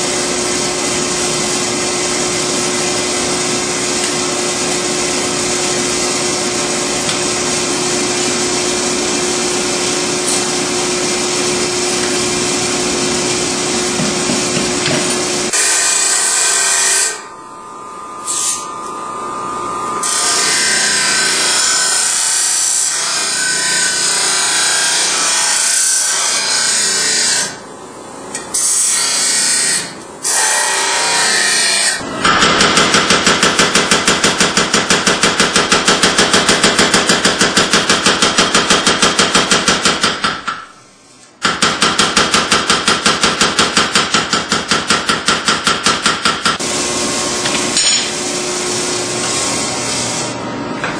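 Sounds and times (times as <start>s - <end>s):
power hammer blows: 32.1s - 40.7s.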